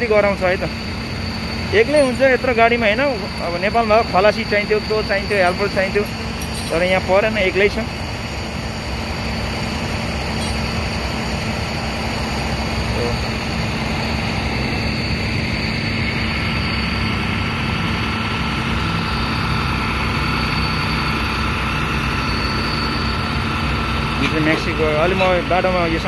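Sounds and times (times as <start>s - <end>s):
truck engine idling: 0.0s - 26.0s.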